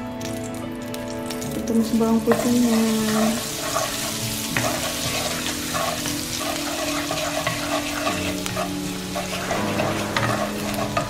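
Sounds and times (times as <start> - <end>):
garlic sizzling in hot oil: 0.0 - 11.0
wooden spatula scraping a pan: 2.3 - 11.0.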